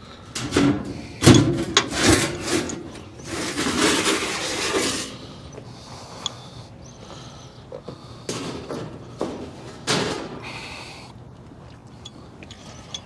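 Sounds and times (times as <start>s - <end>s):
scraping rubbing handling noise: 0.4s - 5.4s.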